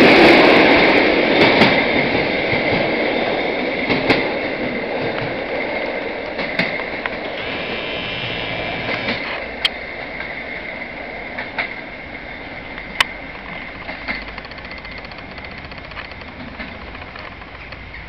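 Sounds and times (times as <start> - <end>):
train rolling along track: 0.0 - 18.0
wheels clicking over rail joints: 0.1 - 18.0
thin high whine: 7.2 - 9.5.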